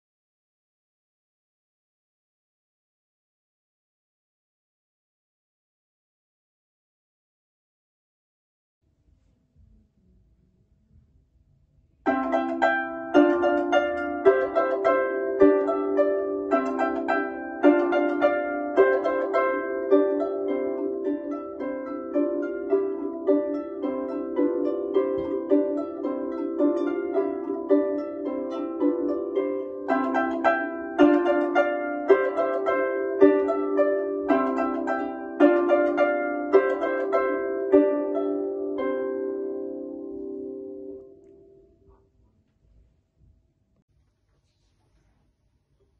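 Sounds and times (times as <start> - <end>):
solo harp playing: 12.1 - 41.9.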